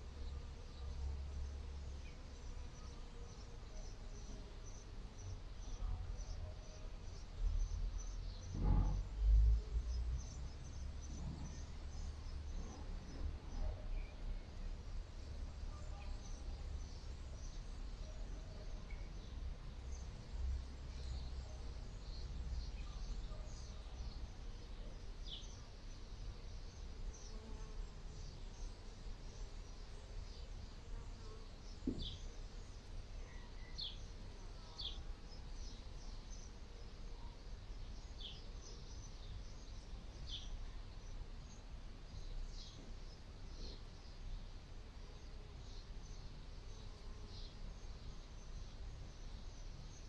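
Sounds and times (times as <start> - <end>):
brief knock: 31.8 - 32.2.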